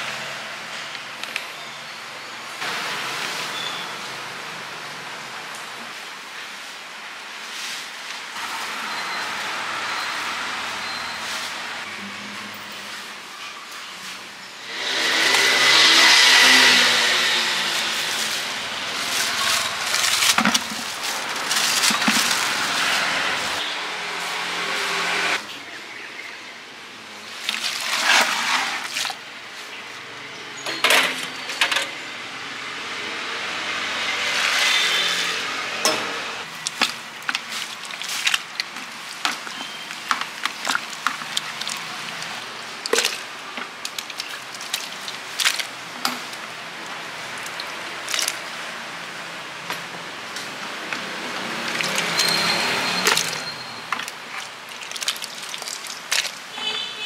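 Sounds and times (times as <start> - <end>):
plastic bag crinkling: 17.7 - 23.6, 36.5 - 46.5, 51.5 - 56.8
utensils and dishes clinking: 30.6 - 32.0, 35.8 - 46.4, 50.9 - 56.6.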